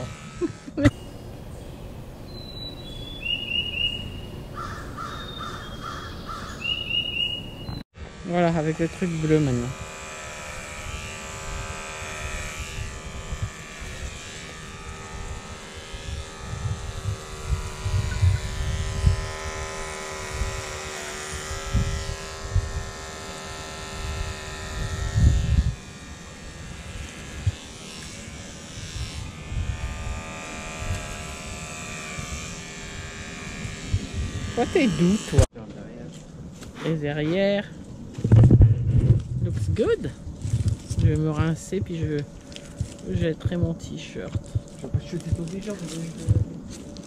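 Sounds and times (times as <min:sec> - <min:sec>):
electric hair trimmer buzzing: 0:00.0 - 0:02.3, 0:02.9 - 0:35.5, 0:38.8 - 0:47.0
low thumps and rumbles: 0:37.8 - 0:46.8.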